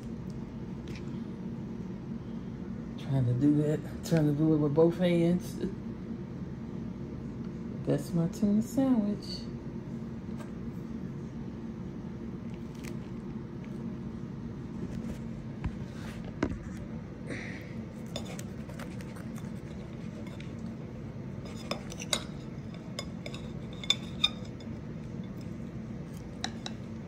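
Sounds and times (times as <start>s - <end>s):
steady low hum: 0.0s - 27.0s
knife and plate clinking: 21.4s - 27.0s.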